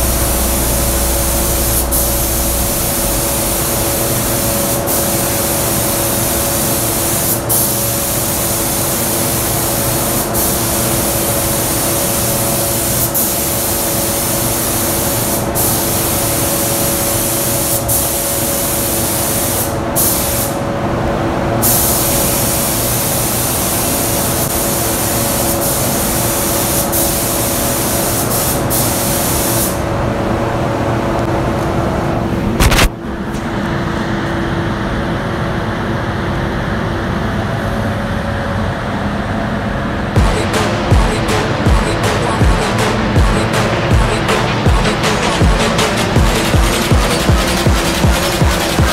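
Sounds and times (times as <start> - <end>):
paint spray gun hissing: 0.0 - 20.6, 21.6 - 29.8, 44.9 - 48.9
steady hum: 0.0 - 48.9.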